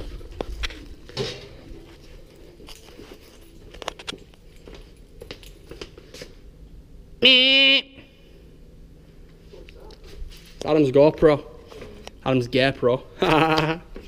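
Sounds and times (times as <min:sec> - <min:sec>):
footsteps: 0:00.0 - 0:06.5, 0:09.0 - 0:12.3.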